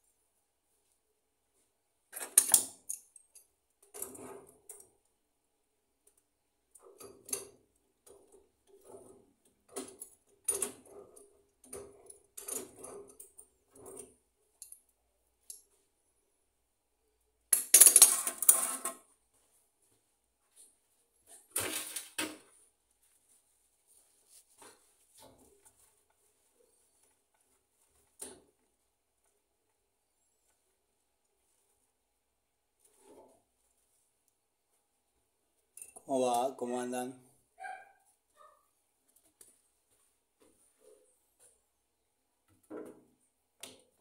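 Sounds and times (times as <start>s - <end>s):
small clicks clinks and knocks: 2.1s - 5.0s, 6.0s - 15.8s, 35.7s - 36.1s.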